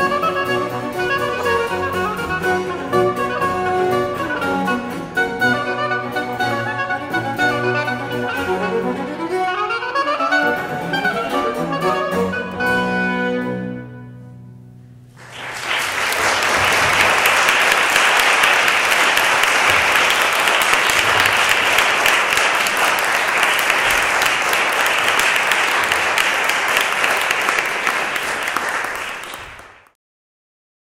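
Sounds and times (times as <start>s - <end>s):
music: 0.0s - 16.6s
audience applauding: 15.2s - 30.0s.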